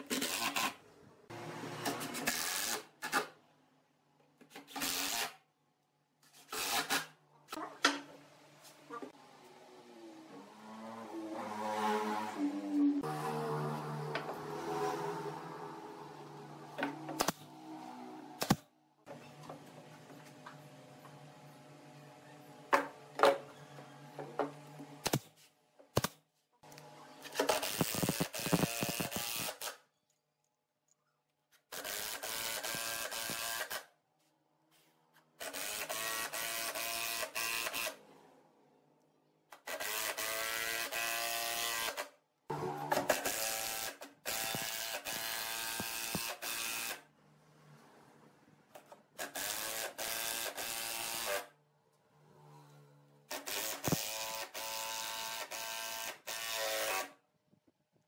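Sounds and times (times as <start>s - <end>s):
impact driver driving screws: 27.3s - 29.8s.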